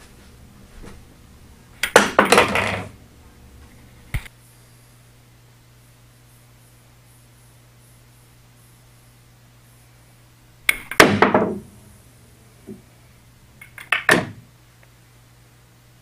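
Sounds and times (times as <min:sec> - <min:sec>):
billiard balls clacking: 0:01.8 - 0:03.0, 0:10.7 - 0:11.7, 0:13.6 - 0:14.4
pool cue striking ball: 0:10.8 - 0:11.7.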